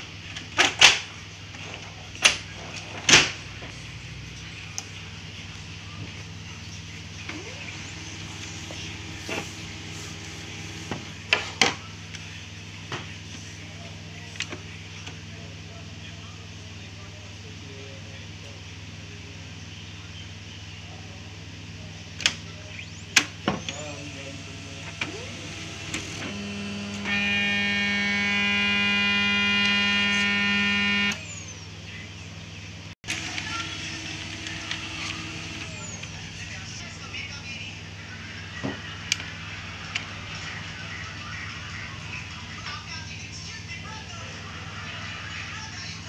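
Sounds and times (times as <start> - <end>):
steady low hum: 2.9 - 42.6
printer motor whine: 7.1 - 11.6, 22.7 - 31.5, 33.0 - 36.6.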